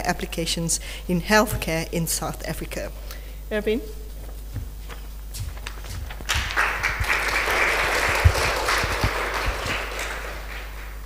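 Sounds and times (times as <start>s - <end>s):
low thumps: 4.1s - 6.6s
audience applauding: 6.2s - 11.0s.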